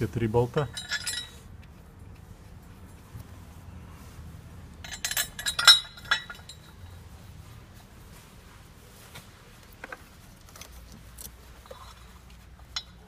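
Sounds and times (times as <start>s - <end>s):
metal bolts clinking on bracket: 0.6s - 1.4s, 4.8s - 6.9s.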